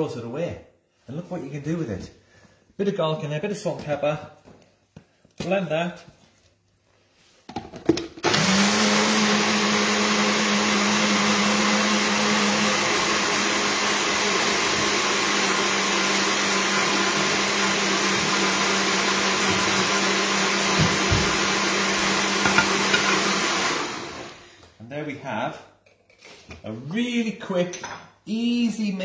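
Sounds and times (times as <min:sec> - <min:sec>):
blender running: 0:08.2 - 0:24.6.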